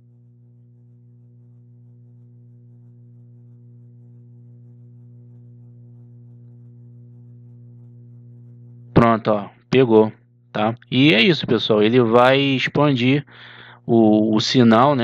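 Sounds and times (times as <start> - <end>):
low tonal hum: 0.0 - 15.0.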